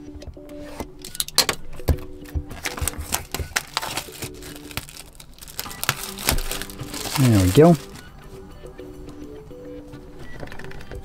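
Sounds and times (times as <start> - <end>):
stickers peeling: 2.5 - 8.1
cardboard box being opened: 2.6 - 8.0.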